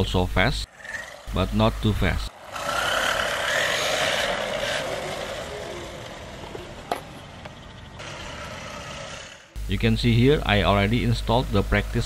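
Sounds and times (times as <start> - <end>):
tyres rolling on asphalt: 0.6 - 12.0
electric motor whining: 0.7 - 9.7.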